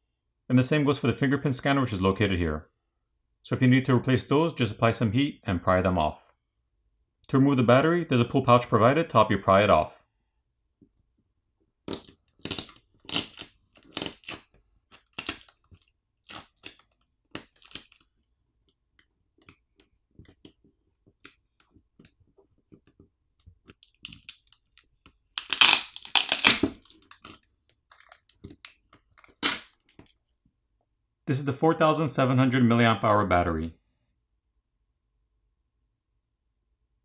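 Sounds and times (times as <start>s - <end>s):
adhesive crackling and tearing: 11.8s - 18.2s, 19.4s - 30.1s
plastic tab crinkling: 11.9s - 30.2s.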